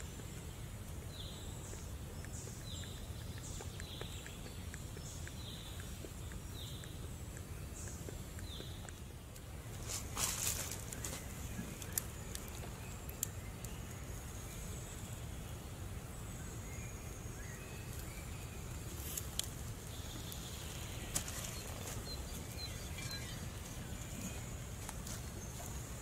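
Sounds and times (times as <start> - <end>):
faint bird chirps: 16.2 - 26.0.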